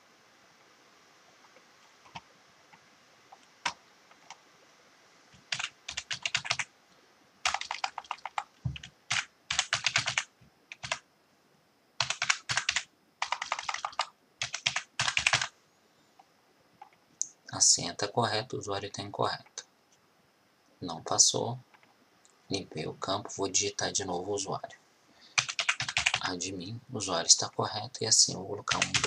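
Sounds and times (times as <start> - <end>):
computer keyboard typing: 5.5 - 6.7, 7.4 - 11.0, 12.0 - 15.5, 25.4 - 26.2, 28.7 - 29.0.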